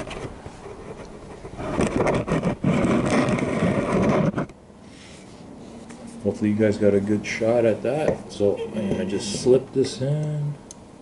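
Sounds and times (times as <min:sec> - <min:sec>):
scraping handling noise: 0:00.0 - 0:06.3.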